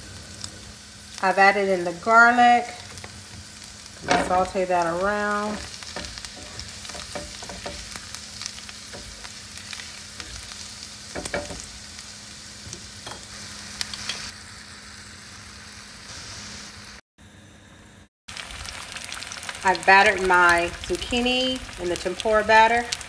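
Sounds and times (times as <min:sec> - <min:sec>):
garlic sizzling in butter: 0:00.0 - 0:17.0, 0:18.3 - 0:23.0
spatula scraping a pan: 0:02.8 - 0:11.8.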